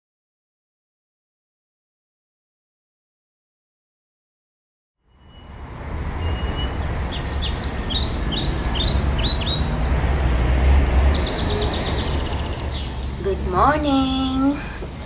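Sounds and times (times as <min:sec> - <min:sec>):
birds chirping: 0:05.2 - 0:15.0
birds rattling chatter: 0:05.9 - 0:15.0.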